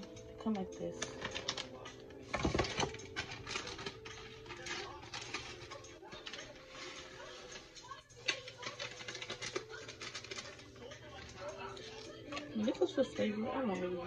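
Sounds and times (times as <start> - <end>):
paper packet crinkling: 0.9 - 13.0.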